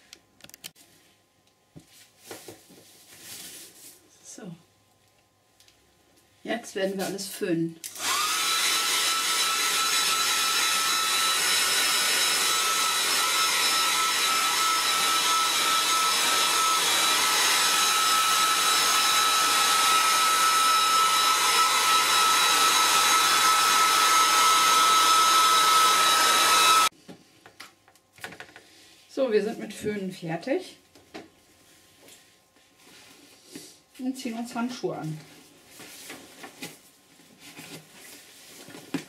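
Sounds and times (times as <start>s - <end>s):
hair dryer running: 7.8s - 26.9s.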